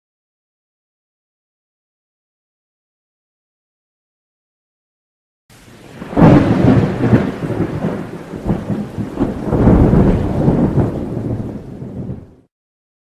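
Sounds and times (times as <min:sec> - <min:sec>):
rain: 0:05.5 - 0:12.5
rolling thunder: 0:05.5 - 0:12.5.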